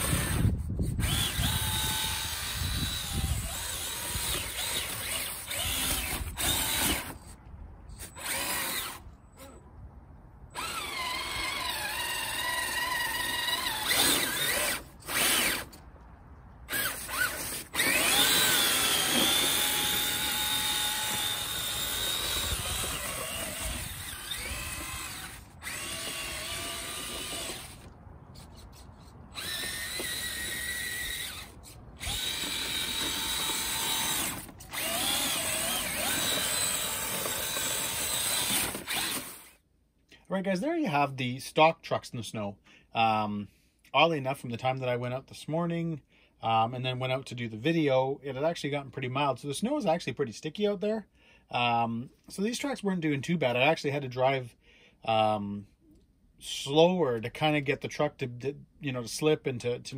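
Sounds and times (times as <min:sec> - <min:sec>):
electric motor whining: 0:00.0 - 0:07.2, 0:08.1 - 0:09.0, 0:10.6 - 0:15.8, 0:16.7 - 0:28.0, 0:29.3 - 0:39.6.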